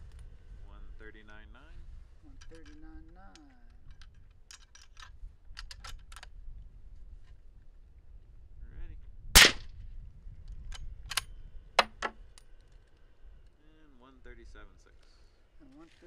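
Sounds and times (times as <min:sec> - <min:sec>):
suppressed rifle shot: 0:09.4 - 0:09.8.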